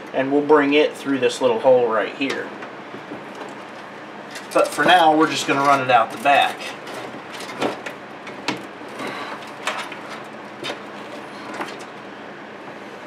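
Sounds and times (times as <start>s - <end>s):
cables rustling and scraping: 2.2s - 12.0s.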